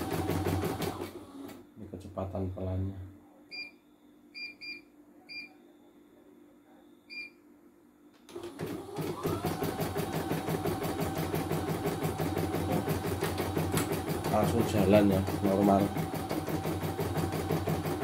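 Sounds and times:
embroidery machine stitching: 0.0 - 1.6, 8.3 - 18.0.

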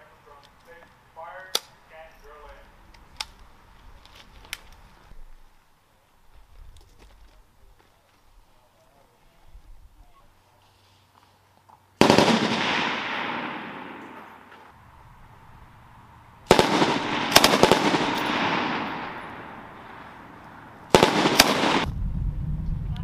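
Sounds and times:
machine-gun fire with echo: 12.0 - 14.6, 16.5 - 20.1, 20.9 - 21.9.

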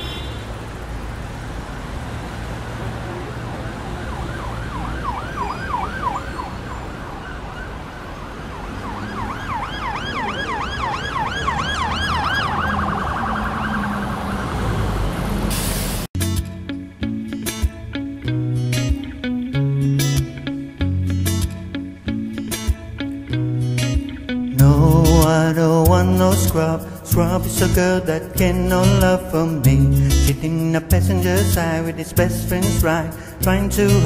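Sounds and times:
low traffic rumble: 0.0 - 34.0
emergency siren yelping: 3.5 - 15.4.

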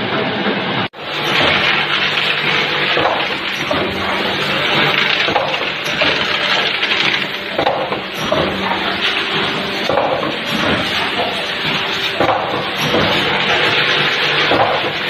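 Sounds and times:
packaging machinery running: 1.0 - 15.0.

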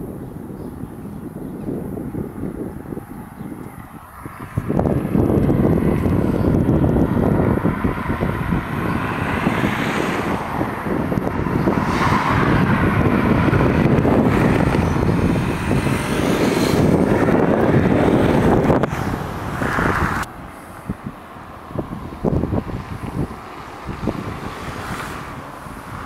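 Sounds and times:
cars passing: 0.0 - 26.0
wind rumble on microphone: 0.0 - 26.0
motorcycle passing: 1.0 - 26.0.

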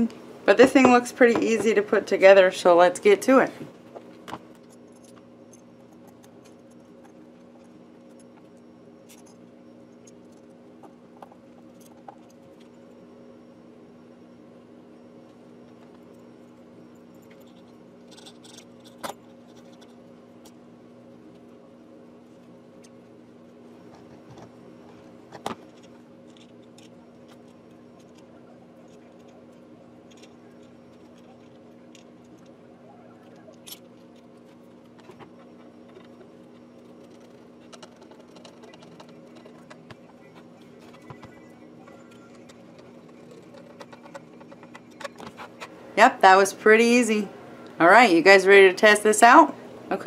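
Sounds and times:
steady low hum: 0.0 - 50.0
small parts clicking and tapping: 17.0 - 20.6, 23.9 - 32.6, 33.2 - 45.7.

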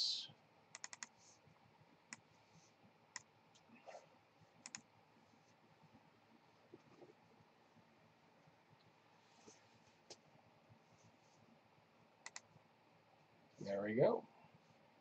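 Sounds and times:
computer mouse clicks: 0.7 - 1.2, 2.1 - 2.3, 3.1 - 3.7, 4.6 - 4.9, 12.2 - 12.5.

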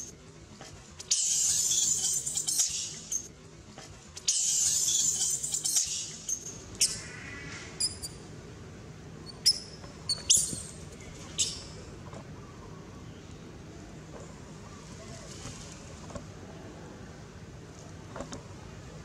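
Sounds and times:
monkeys screeching: 1.1 - 3.2, 4.3 - 7.2
sharp high squeaks: 9.3 - 10.7.

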